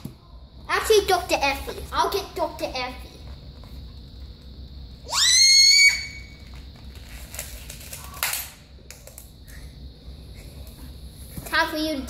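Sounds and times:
balloon squealing as air escapes: 5.1 - 6.5.

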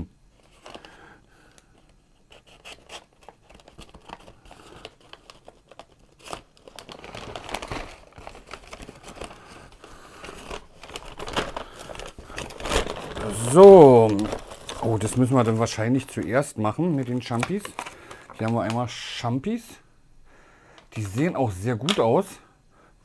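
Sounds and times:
paper bag crinkling and tearing: 0.4 - 1.1, 2.4 - 19.2.

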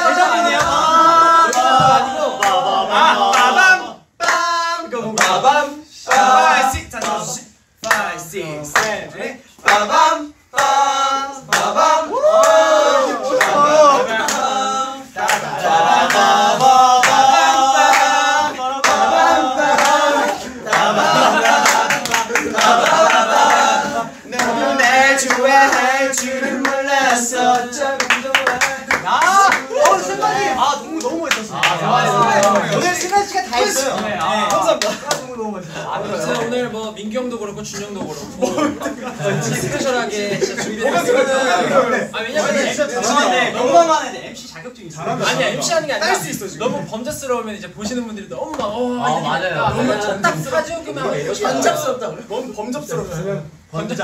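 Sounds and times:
young men singing a cappella: 0.0 - 47.3, 48.4 - 54.0
hand clapping: 5.2 - 5.4, 7.8 - 8.1, 15.2 - 18.2, 18.8 - 19.1, 19.7 - 23.8, 25.2 - 30.0.

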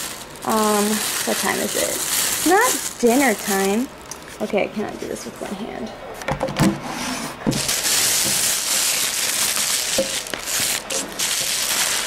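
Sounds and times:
plastic bag rustling and crinkling: 0.0 - 4.5, 7.5 - 12.0.

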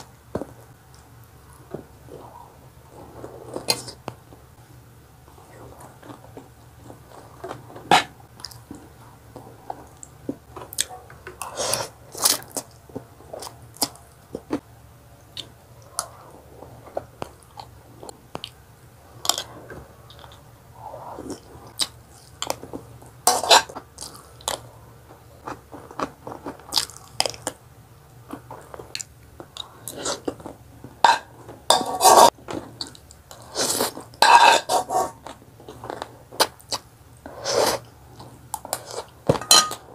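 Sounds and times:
fork scraping a pan: 31.1 - 32.3, 33.6 - 35.2.

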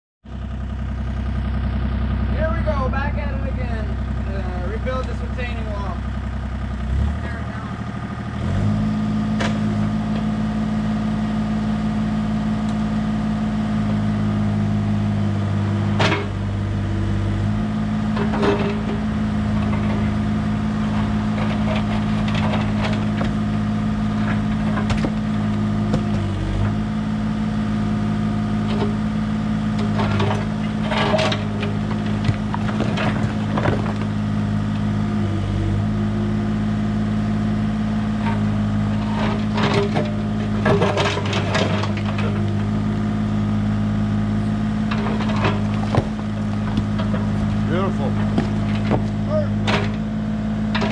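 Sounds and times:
excavator diesel engine running: 0.3 - 50.9
stones knocking and clattering: 24.2 - 26.4, 29.8 - 34.2, 45.0 - 49.2.

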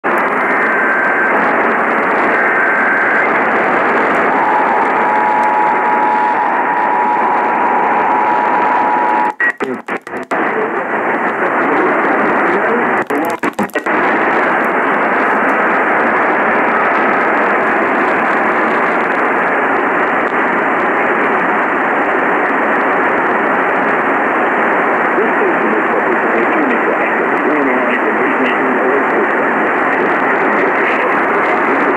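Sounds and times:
radio static hiss: 0.0 - 31.9
whistling interference tones: 4.3 - 9.6.

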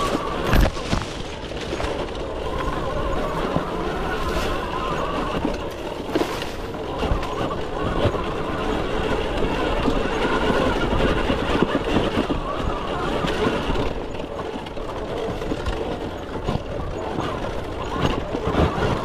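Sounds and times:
tyres clattering over stones: 0.0 - 7.4.

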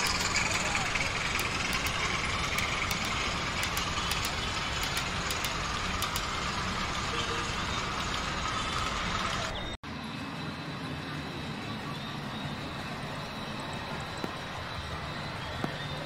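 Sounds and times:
light irregular ticking: 0.0 - 9.6
model train rumbling on track: 0.0 - 9.8.

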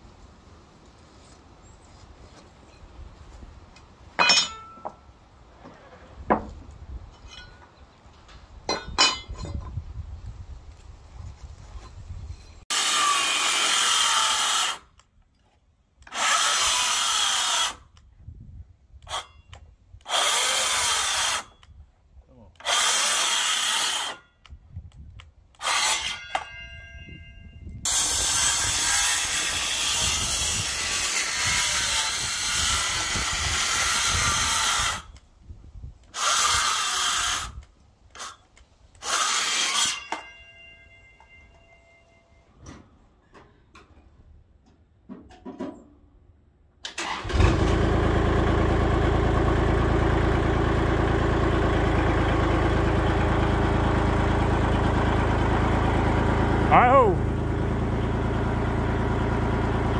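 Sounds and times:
power saw cutting wood: 12.7 - 14.9, 16.1 - 17.8, 20.0 - 21.6, 22.6 - 24.3, 25.6 - 26.5, 27.9 - 35.2, 36.1 - 37.6, 39.0 - 40.2.

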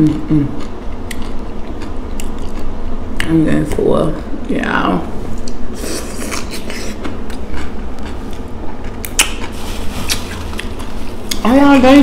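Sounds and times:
crunching and chewing cucumber: 0.2 - 2.8, 5.4 - 11.5.

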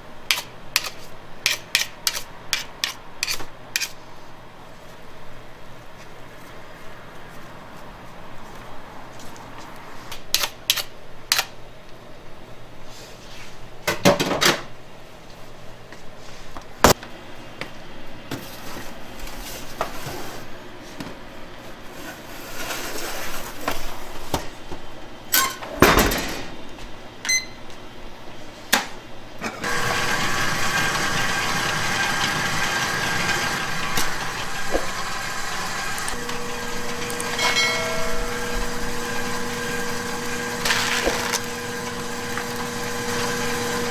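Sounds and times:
machine hum with whining tones: 29.4 - 43.9
metal baking trays clattering: 37.3 - 38.7.

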